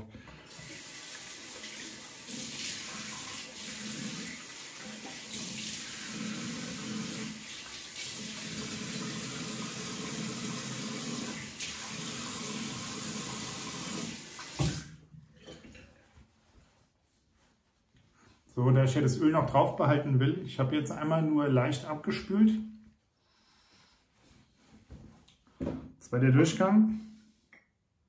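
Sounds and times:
tap running into a sink: 0.5s - 15.8s.

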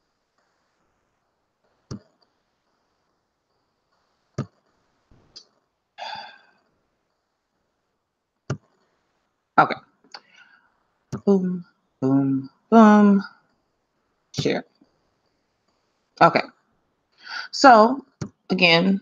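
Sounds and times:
person sighing: 6.0s - 6.4s.

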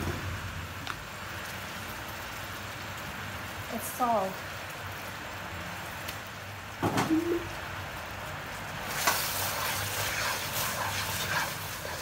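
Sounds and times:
syrup bubbling and sizzling in wok: 0.0s - 12.0s
wooden spatula scraping and stirring: 8.9s - 12.0s.

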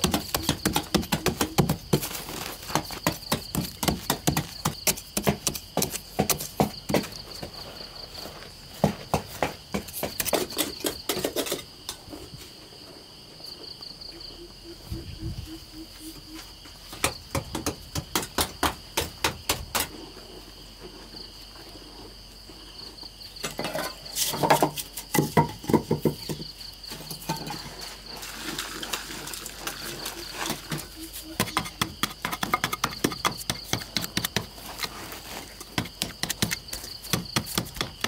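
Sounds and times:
digging blade striking earth: 0.0s - 7.2s, 31.4s - 38.0s
crickets chirping: 0.0s - 38.0s.

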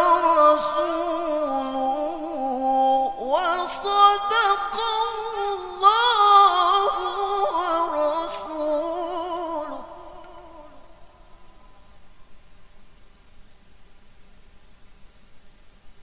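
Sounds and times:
man reciting melodically: 0.0s - 11.7s.

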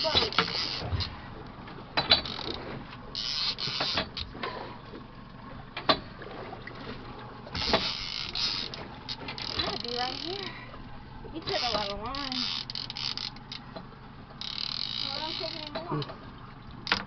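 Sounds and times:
fishing reel whirring: 0.0s - 1.1s, 2.2s - 4.3s, 7.5s - 10.5s, 11.5s - 13.7s, 14.4s - 15.8s
sharp reel clicks: 7.6s - 10.4s, 11.5s - 13.6s, 14.4s - 15.8s.

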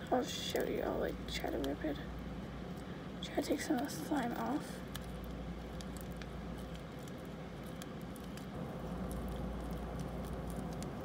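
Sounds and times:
slime being squished by hand: 4.8s - 11.0s.

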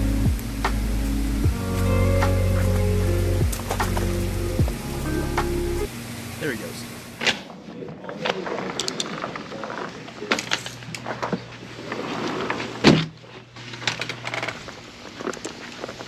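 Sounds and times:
sliding glass door sliding: 0.0s - 5.9s, 7.2s - 16.0s
low steady hum: 0.0s - 8.0s.

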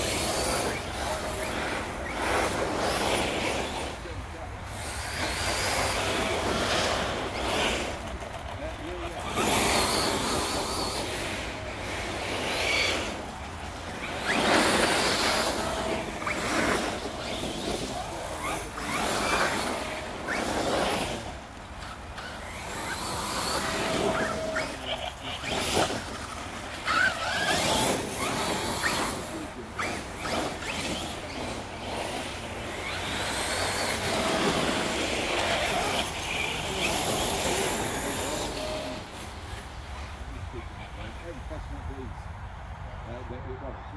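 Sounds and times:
tyres churning through dry leaves: 0.0s - 42.1s
electric motor whines: 9.0s - 39.6s.

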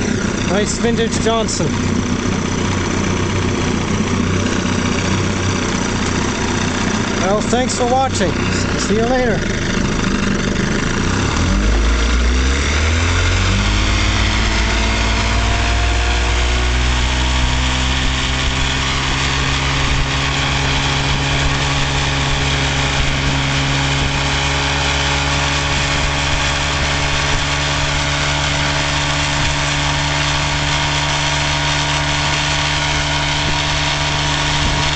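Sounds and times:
outboard motor revving: 0.0s - 34.9s.

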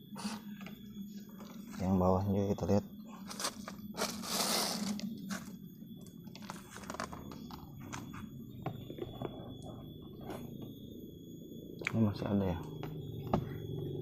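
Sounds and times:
low hum: 0.0s - 14.0s
foam crackling and popping: 3.3s - 5.5s.

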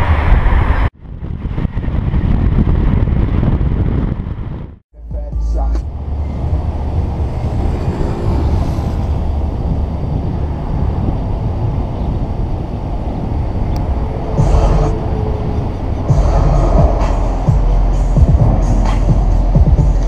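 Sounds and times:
car driving at speed: 5.5s - 20.0s.

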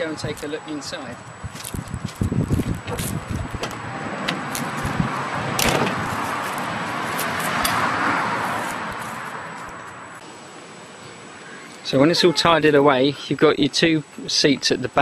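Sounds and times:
sliding van door rolling open: 2.8s - 6.2s
door clunk: 5.6s - 6.0s.

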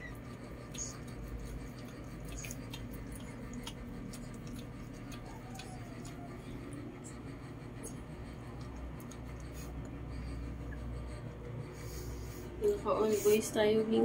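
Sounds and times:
dog licking puppies: 0.0s - 10.8s.

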